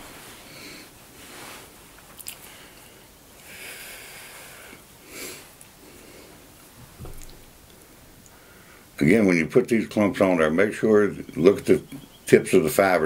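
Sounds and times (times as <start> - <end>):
man breathing through nose: 2.4 - 6.5.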